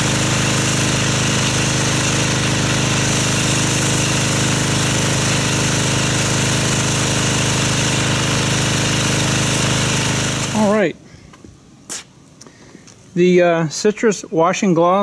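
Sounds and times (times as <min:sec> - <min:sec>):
hiss of water spray: 0:00.0 - 0:10.7
pressure washer motor hum: 0:00.0 - 0:10.9.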